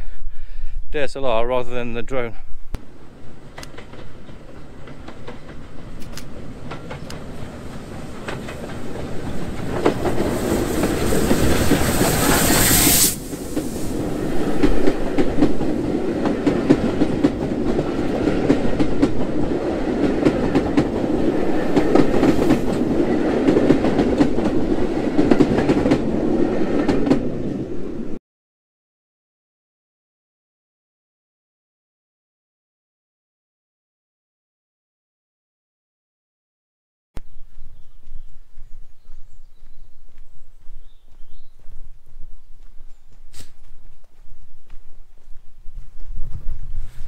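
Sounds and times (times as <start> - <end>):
steam locomotive passing: 2.8 - 28.2
carriage wheels clickety-clack: 3.6 - 13.6.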